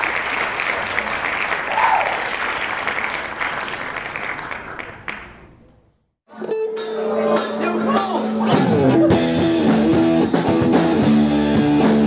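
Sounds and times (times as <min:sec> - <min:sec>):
audience applauding and cheering: 0:00.0 - 0:05.6.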